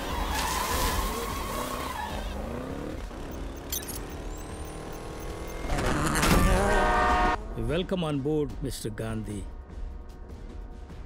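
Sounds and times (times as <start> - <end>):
buggy engine revving: 0.0 - 7.4.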